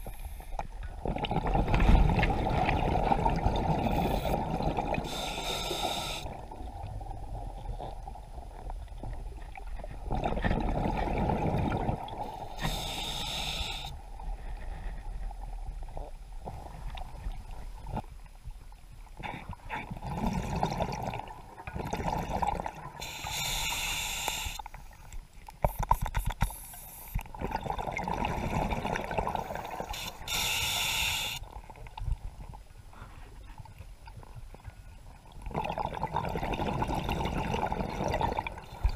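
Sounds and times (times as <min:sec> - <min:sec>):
exhaled bubbles gurgling: 0:00.9 - 0:14.5, 0:19.2 - 0:24.5, 0:27.2 - 0:32.5, 0:35.2 - 0:38.9
regulator hissing inhalations: 0:05.1 - 0:06.3, 0:12.4 - 0:14.0, 0:23.0 - 0:24.7, 0:26.4 - 0:27.2, 0:29.5 - 0:31.4.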